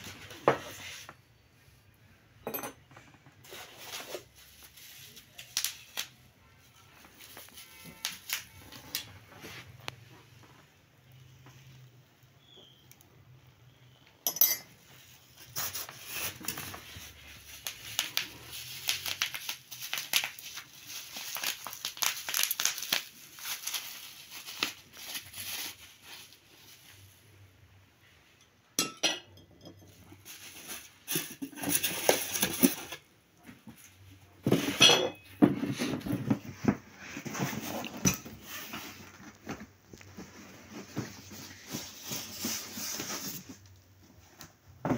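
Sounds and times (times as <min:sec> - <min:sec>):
china clinking: 0:02.4 - 0:02.8, 0:14.2 - 0:14.8, 0:28.8 - 0:30.0, 0:34.8 - 0:35.3
bubble wrap crinkling: 0:03.4 - 0:10.0, 0:14.9 - 0:27.4, 0:30.1 - 0:34.6, 0:35.7 - 0:44.6.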